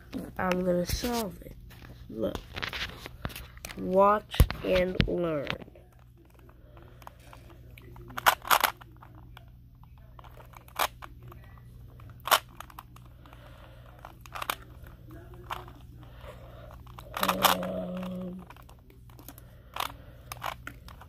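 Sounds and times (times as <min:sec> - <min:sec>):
plastic puzzle cube clicking: 0:07.0 - 0:13.0, 0:13.9 - 0:15.8, 0:16.7 - 0:21.0.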